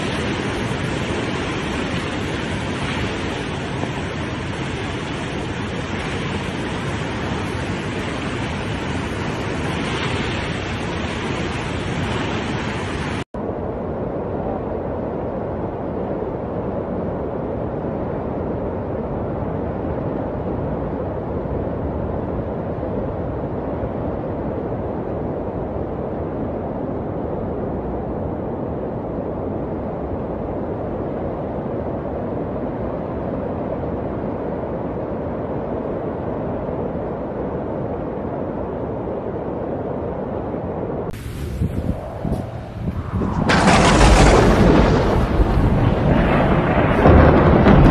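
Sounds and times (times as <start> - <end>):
floodwater rushing: 0.0 - 13.2.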